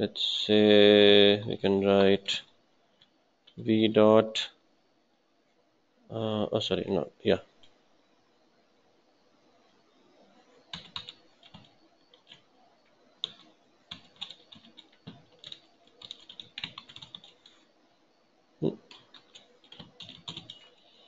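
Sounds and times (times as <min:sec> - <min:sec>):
computer keyboard typing: 0:10.7 - 0:12.4, 0:13.2 - 0:17.6, 0:18.9 - 0:21.0.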